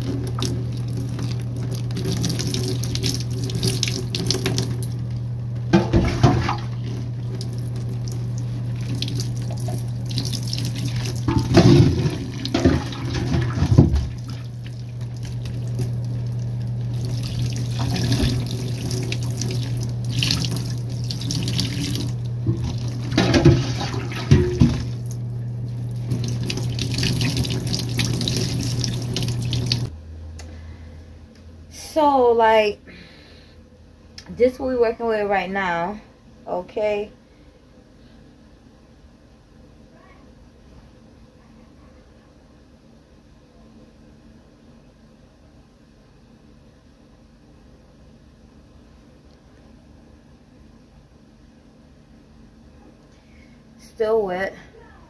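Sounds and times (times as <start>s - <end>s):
water poured over hair splashing: 0.0s - 4.9s, 7.3s - 25.2s, 25.8s - 29.9s
low hum: 0.0s - 35.0s
tap running into sink: 11.0s - 14.3s, 21.3s - 25.0s.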